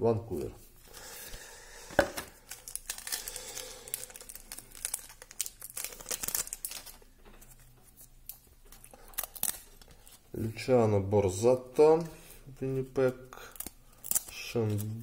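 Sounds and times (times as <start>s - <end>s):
wrapper crinkling and tearing: 2.3s - 10.2s, 13.4s - 15.0s.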